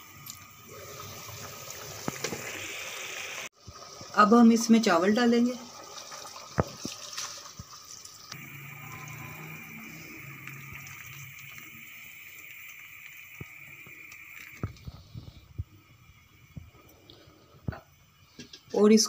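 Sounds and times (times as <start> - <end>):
water bubbling at the boil: 0.2 - 18.7
rice poured into water: 5.6 - 14.9.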